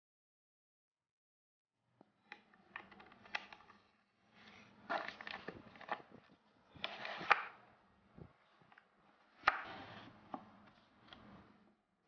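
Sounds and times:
wood scraping on workbench: 9.4s - 10.1s.

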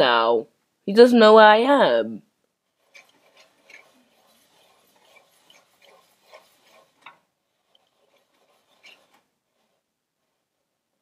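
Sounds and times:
faint small clicks and rubbing: 2.6s - 10.4s.

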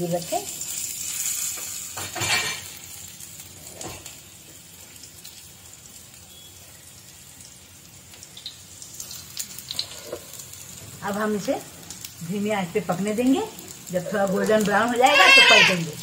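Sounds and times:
kebabs sizzling in oil: 0.0s - 16.0s.

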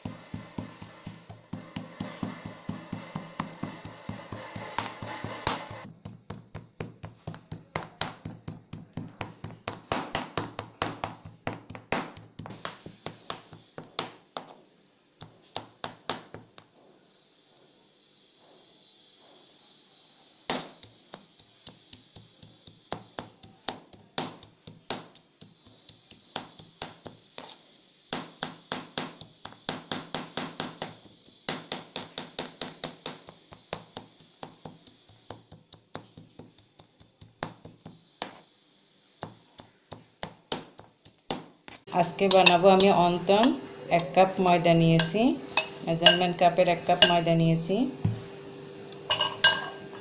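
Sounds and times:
knife chopping on plastic board: 0.0s - 14.5s.

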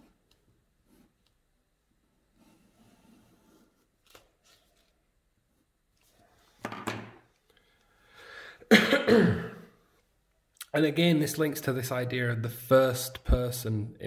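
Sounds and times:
person breathing: 7.5s - 8.7s.

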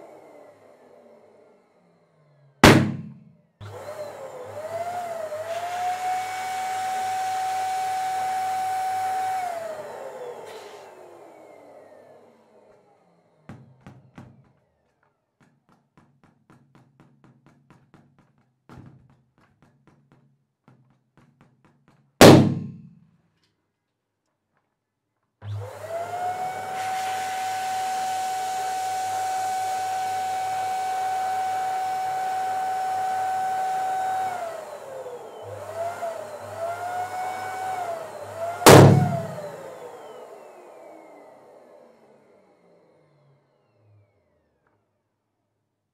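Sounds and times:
electric pump whirring: 0.0s - 14.2s, 25.4s - 44.5s
balloons popping: 2.6s - 3.3s, 22.2s - 22.9s, 38.7s - 39.4s.

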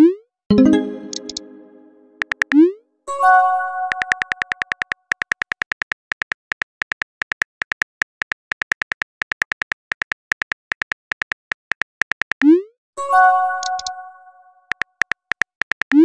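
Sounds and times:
message chime: 0.5s - 2.2s.

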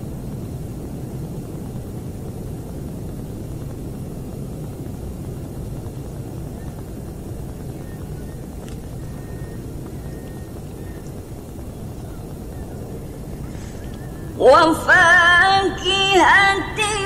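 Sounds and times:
steady low rumbling: 0.0s - 17.0s.

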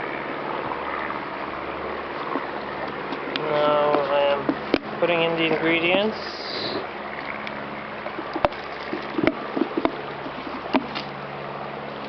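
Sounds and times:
steady background hiss: 0.0s - 12.0s
knocks and taps in bucket: 8.1s - 11.1s.

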